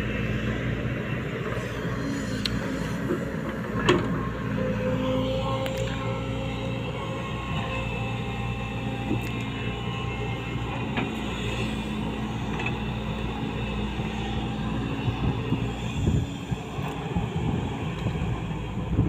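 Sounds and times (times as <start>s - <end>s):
excavator diesel engine droning: 0.0s - 19.0s.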